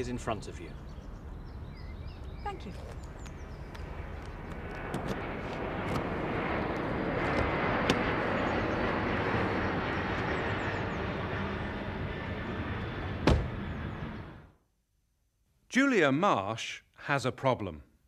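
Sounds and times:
outdoor rumble: 0:00.5 - 0:14.6
car door slamming shut: 0:13.2 - 0:13.5.

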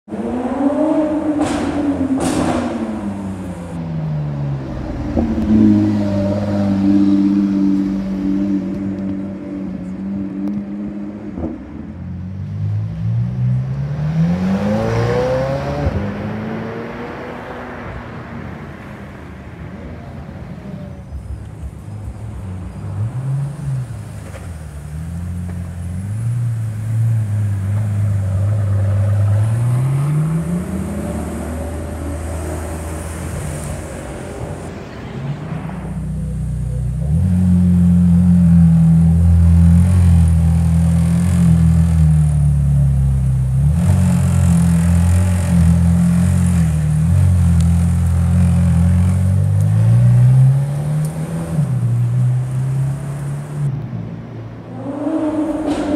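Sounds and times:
sports car engine revving: 0:36.0 - 0:53.8.

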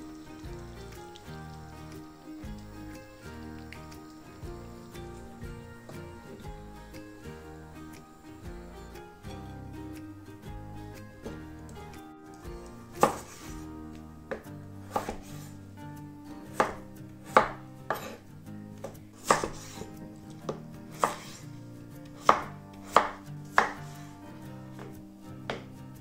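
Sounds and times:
knife knocking on wooden board: 0:25.5 - 0:25.7.

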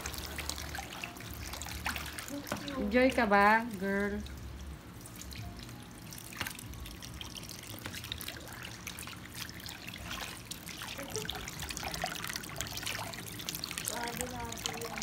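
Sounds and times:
laundry splashing in water: 0:00.0 - 0:15.0
water running from a hose: 0:00.0 - 0:15.0.

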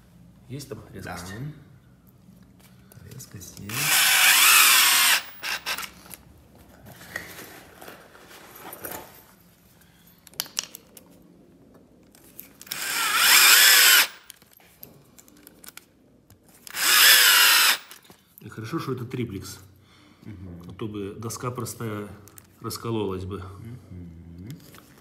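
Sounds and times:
cordless drill driving screw: 0:03.7 - 0:06.0, 0:12.6 - 0:14.3, 0:16.6 - 0:18.0.

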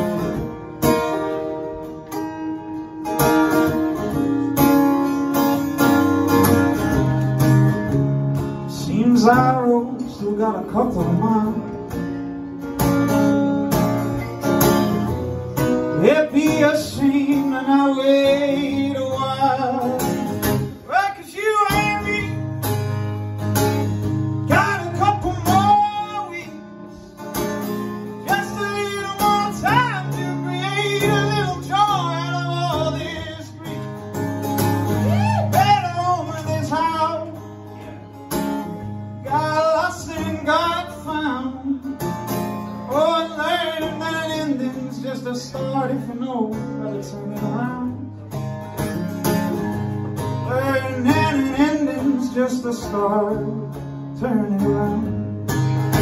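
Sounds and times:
acoustic guitar: 0:00.0 - 0:56.0
man singing: 0:08.6 - 0:12.0, 0:15.8 - 0:22.6, 0:24.4 - 0:27.2, 0:28.1 - 0:34.1, 0:34.9 - 0:38.1, 0:39.2 - 0:48.4, 0:50.3 - 0:55.3.

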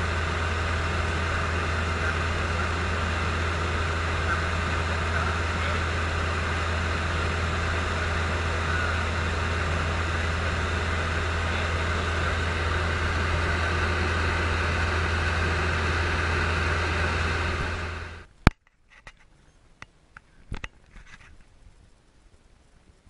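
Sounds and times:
aircraft engine droning: 0:00.0 - 0:18.4.

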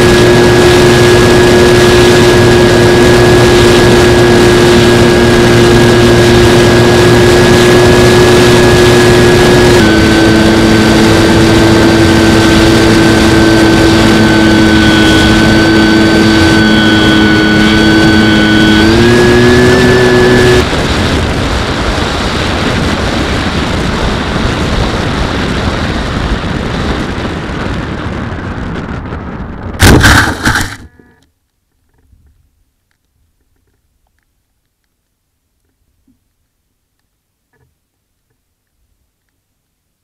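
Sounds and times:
electric motor and propeller whine: 0:00.0 - 0:29.2, 0:29.8 - 0:31.3
plane landing thumps and scraping: 0:29.7 - 0:31.2.

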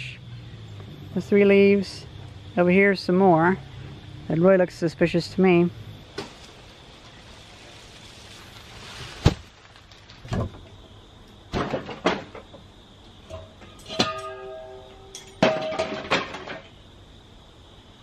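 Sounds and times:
wooden knocks and clunks: 0:10.2 - 0:12.7, 0:15.4 - 0:16.8
ringing tone: 0:13.3 - 0:15.3.

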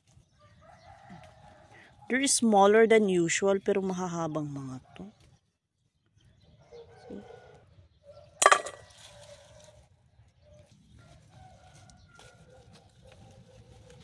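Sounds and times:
beans clattering into metal bowl: 0:08.4 - 0:08.9.

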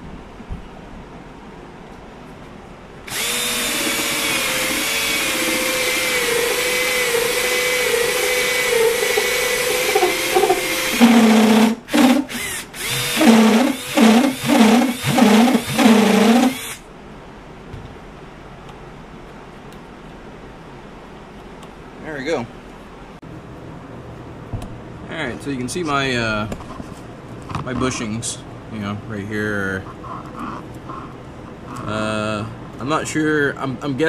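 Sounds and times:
cordless drill whining: 0:03.1 - 0:16.8.

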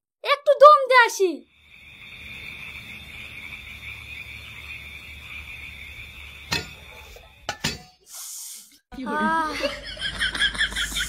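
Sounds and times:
crickets chirring: 0:01.4 - 0:07.9.

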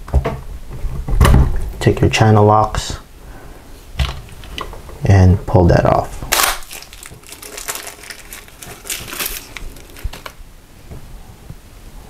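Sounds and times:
plastic cartridge scraping and crunching: 0:06.3 - 0:10.4.

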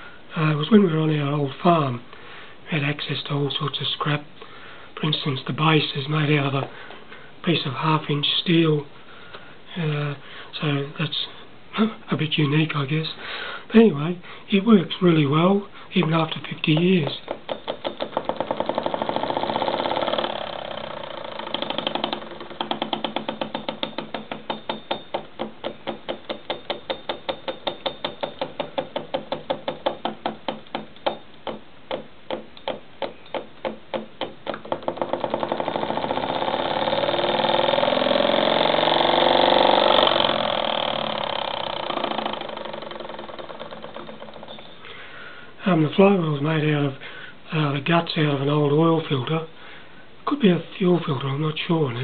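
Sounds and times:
solenoid engine clattering: 0:16.7 - 0:44.8.

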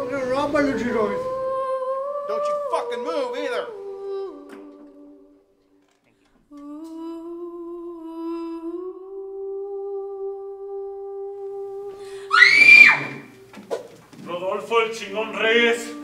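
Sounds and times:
high-pitched vocal cry: 0:12.3 - 0:13.3.

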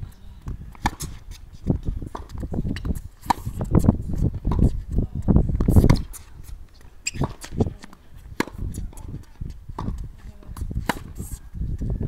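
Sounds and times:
tennis balls struck by rackets: 0:00.4 - 0:04.8, 0:05.6 - 0:11.3.

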